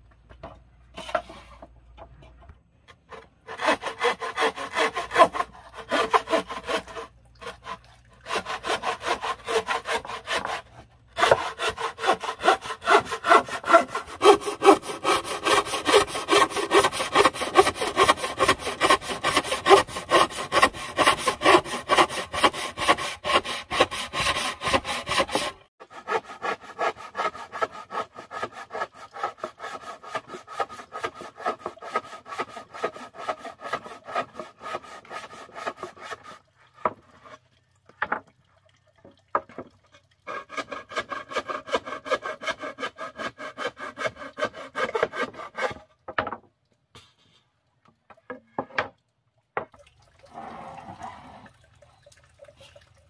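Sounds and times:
frame saw cutting wood: 2.9s - 37.4s, 40.3s - 45.8s.

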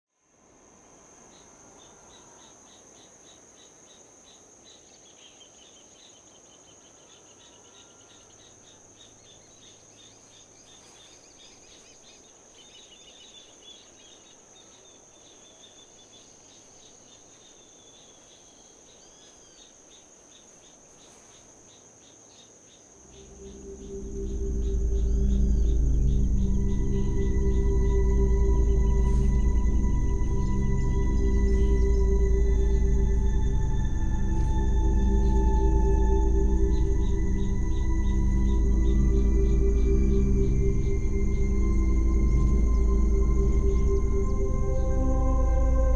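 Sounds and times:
insects chirping: 0.2s - 45.9s
deep low music drone: 23.0s - 45.9s
steady high-pitched whine: 23.0s - 45.9s.

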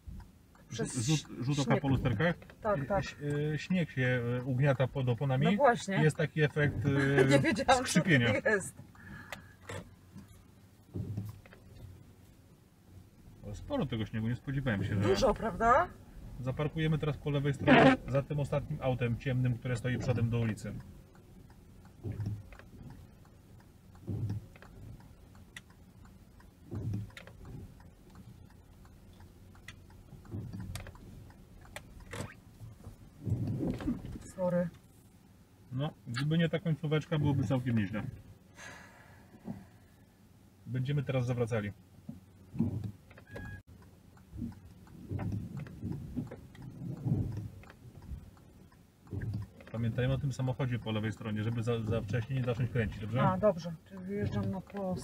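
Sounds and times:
turn signal ticking: 0.0s - 55.0s
windscreen wipers sweeping: 0.0s - 55.0s
low thumps: 10.8s - 11.9s, 21.9s - 23.0s, 23.9s - 25.0s, 30.0s - 34.5s, 42.1s - 53.4s.

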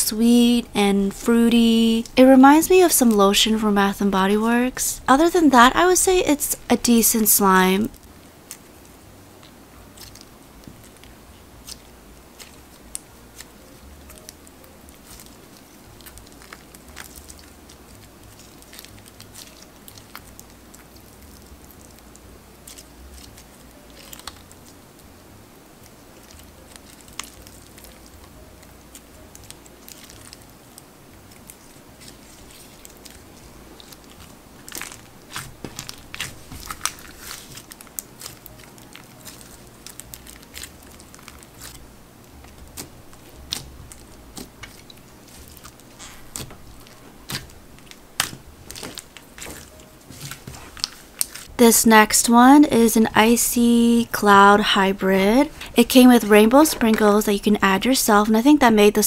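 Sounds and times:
slime crackling and popping: 6.8s - 52.4s.

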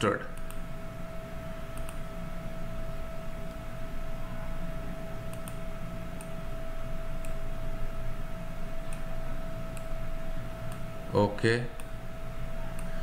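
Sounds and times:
steady hiss and hum: 0.0s - 13.0s
computer mouse clicks: 0.3s - 0.6s, 1.7s - 2.0s, 5.3s - 5.6s, 6.2s - 6.4s, 7.2s - 7.4s, 8.8s - 9.1s, 9.7s - 9.9s, 11.8s - 12.0s, 12.7s - 13.0s.

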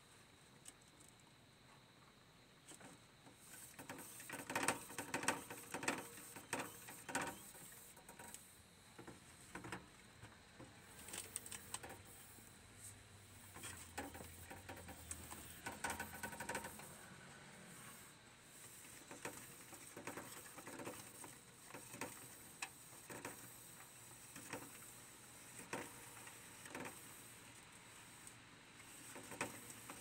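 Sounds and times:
hamsters scrabbling in cages: 2.7s - 8.4s, 13.5s - 17.0s, 18.6s - 23.7s.

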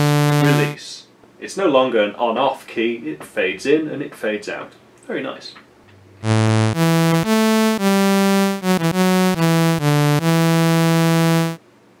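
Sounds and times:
software synthesizer low notes: 0.0s - 0.8s, 6.2s - 11.6s.

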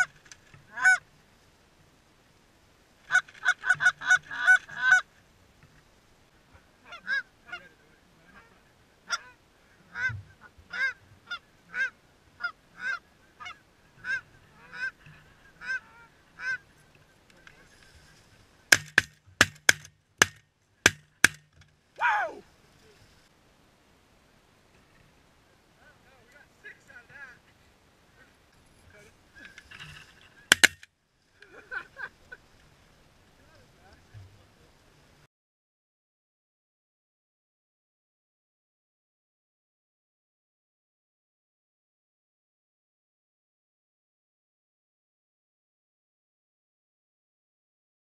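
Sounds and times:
goose call honks and clucks: 0.0s - 1.0s, 3.1s - 5.1s, 6.6s - 16.7s
shotgun blasts: 18.7s - 21.5s.

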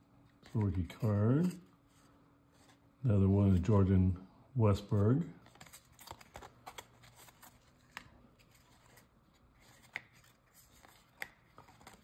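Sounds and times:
cards being flipped through: 0.3s - 2.8s, 4.9s - 12.0s.

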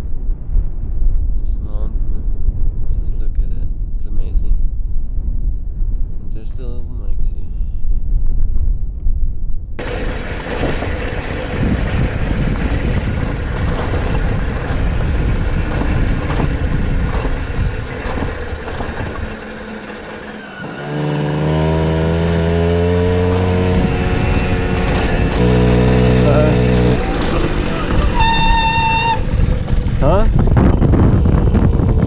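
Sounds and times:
wind noise: 0.0s - 32.0s
rattle: 9.8s - 21.7s
moped engine hum: 9.8s - 32.0s.

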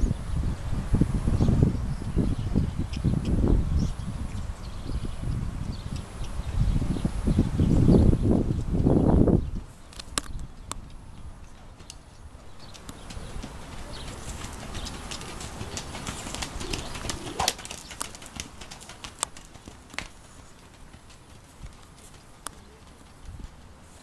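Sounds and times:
hoofbeats on sand: 10.4s - 24.0s.

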